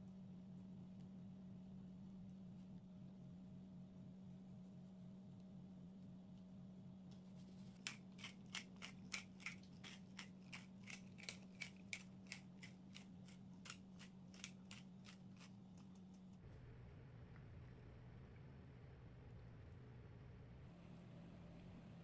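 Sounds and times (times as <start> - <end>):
pepper mill grinding: 7.7 - 16.3.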